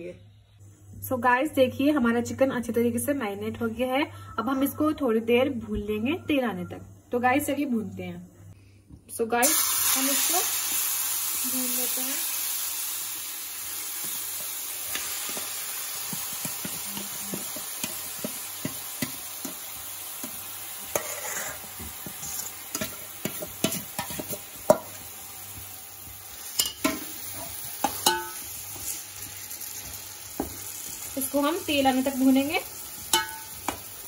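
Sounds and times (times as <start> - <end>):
chicken sizzling in hot oil: 9.4 - 34.0
metal spoon scraping and clinking pot: 20.2 - 24.9, 26.6 - 29.0, 33.1 - 33.6.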